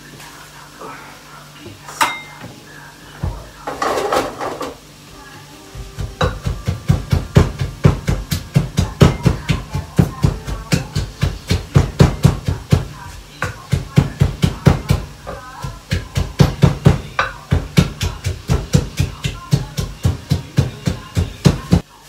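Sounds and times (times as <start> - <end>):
pestle pounding in clay mortar: 5.7 - 21.8.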